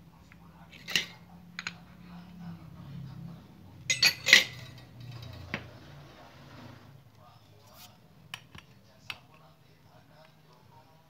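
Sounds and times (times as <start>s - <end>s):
faint low hum: 0.0s - 11.0s
metal clinking against metal: 3.9s - 5.5s.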